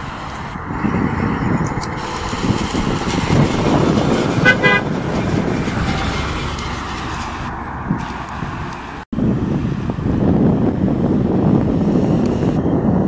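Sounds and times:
fire truck driving past: 0.0 - 11.6
short horn toot: 4.4 - 4.9.

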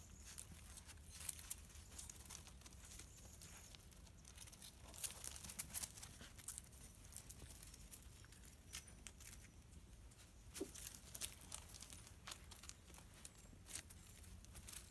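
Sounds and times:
crunches on gravel and leaves: 0.0 - 14.9.

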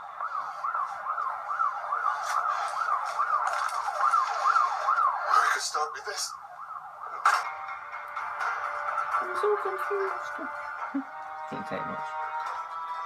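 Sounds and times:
siren yelping: 0.0 - 7.4.

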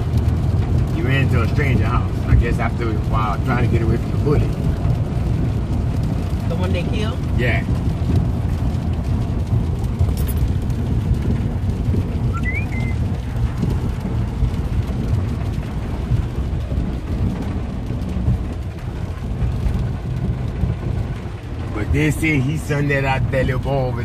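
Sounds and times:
rain hissing: 0.0 - 24.0
vehicle rumbling on wet road: 0.0 - 24.0.

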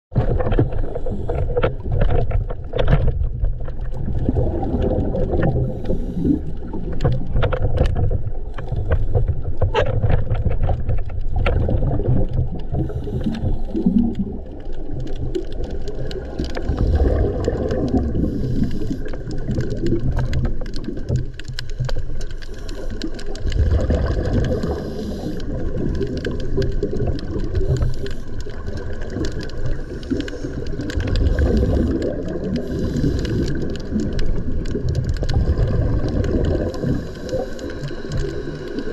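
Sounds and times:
bubbles rumbling and gurgling: 0.1 - 38.9
sharp underwater clicks: 0.2 - 38.9
scuba regulator breathing: 0.7 - 1.8, 5.6 - 6.8, 12.8 - 14.2, 16.6 - 19.5, 24.2 - 26.2, 27.6 - 28.7, 29.7 - 34.2, 36.2 - 38.9.

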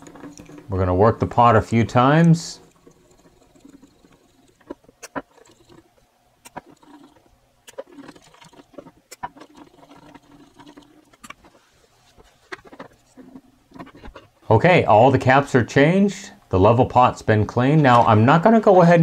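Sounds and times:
potentiometer shaft clicking and scraping: 0.0 - 14.4.

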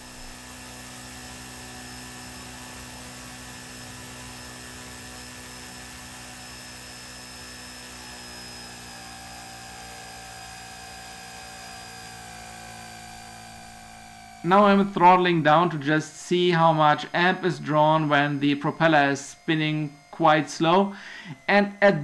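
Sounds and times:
electric motor whining: 0.0 - 15.6
hum: 0.0 - 22.0.

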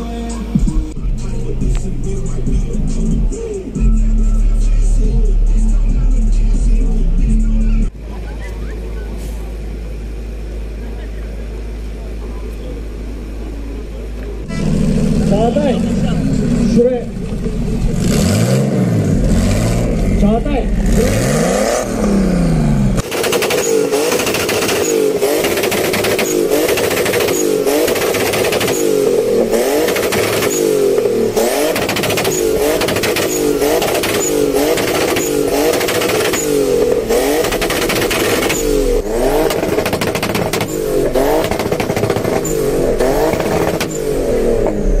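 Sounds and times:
turbocharged car engine revving: 0.0 - 8.0, 9.5 - 45.0
exhaust cracks: 0.6 - 4.0, 12.5 - 45.0.

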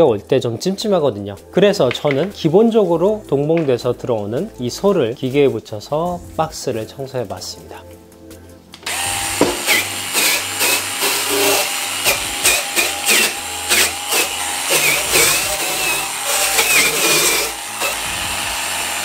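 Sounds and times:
power scrubber motor whine: 8.8 - 19.0.

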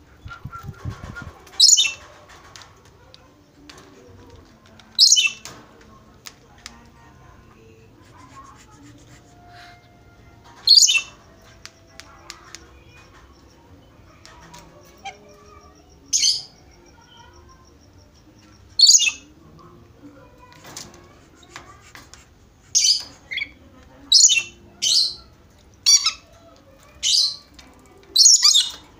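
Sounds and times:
faint clicks: 1.4 - 7.0, 11.3 - 15.8.

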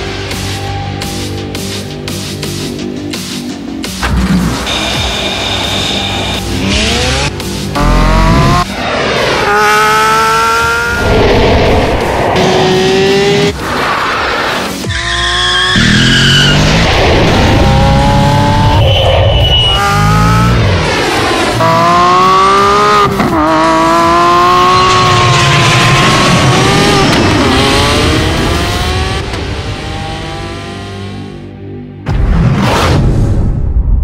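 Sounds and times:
sports car engine accelerating hard: 6.4 - 8.7, 9.4 - 13.6, 15.3 - 18.8, 19.7 - 31.4.

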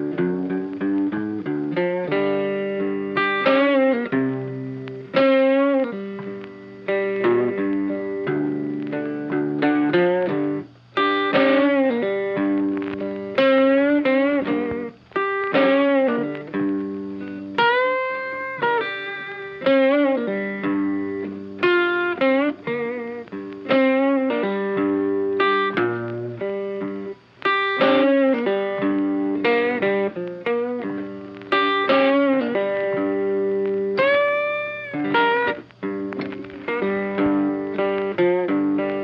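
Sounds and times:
instrumental background music: 0.0 - 39.0.

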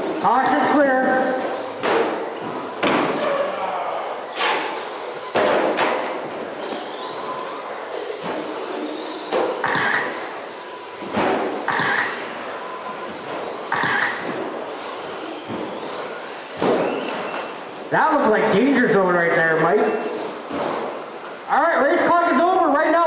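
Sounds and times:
rc truck motors whining: 4.0 - 5.4, 6.1 - 17.7, 19.8 - 21.5.

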